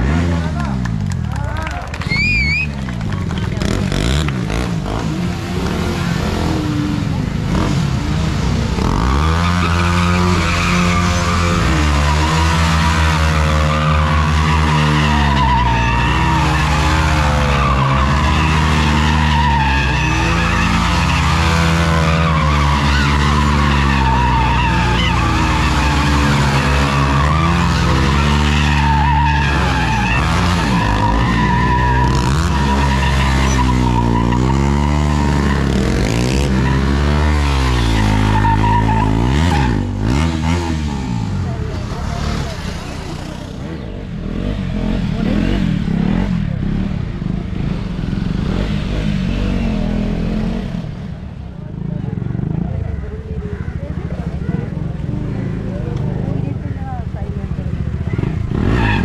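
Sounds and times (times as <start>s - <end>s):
motorcycles revving hard: 0.0s - 59.0s
tyres squealing on tarmac: 2.0s - 2.9s, 8.8s - 44.5s, 51.8s - 59.0s.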